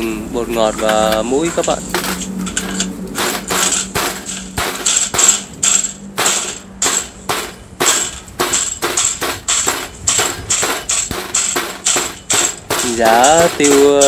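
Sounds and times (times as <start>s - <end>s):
cleaver pounding peppercorns on board: 3.1s - 14.0s.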